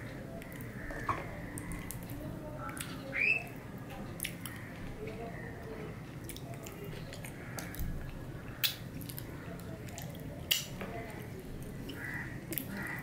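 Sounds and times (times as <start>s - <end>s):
wet chewing and lip-smacking: 6.2s - 10.8s
fingers being licked: 9.9s - 10.7s
mouth clicks: 9.9s - 10.7s.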